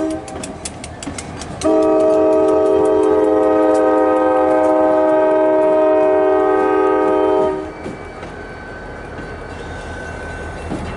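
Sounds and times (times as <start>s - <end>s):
locomotive air horn: 0.0s - 0.5s, 1.6s - 7.8s.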